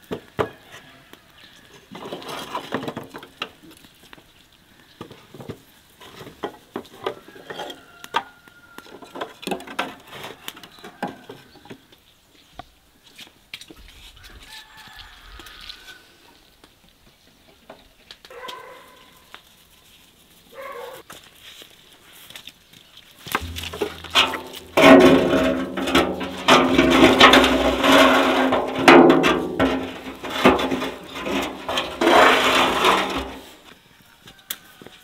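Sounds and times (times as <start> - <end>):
wire rack scraping steel barrel: 23.3 - 33.7.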